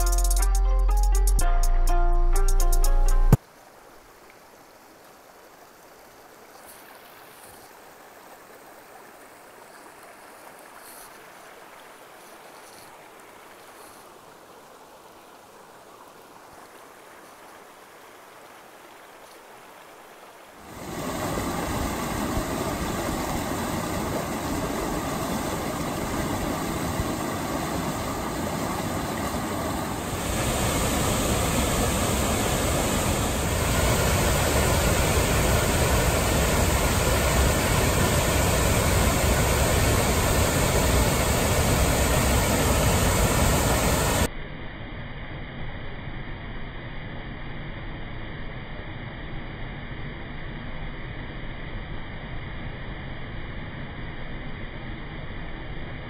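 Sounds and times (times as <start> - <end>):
creek flowing: 3.3 - 44.3
white water over rocks: 3.4 - 44.3.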